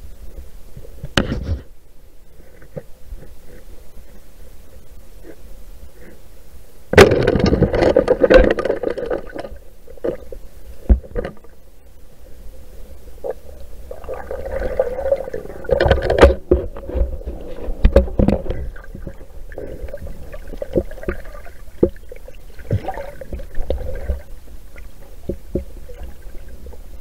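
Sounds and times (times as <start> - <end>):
underwater water bubbling: 12.2 - 27.0.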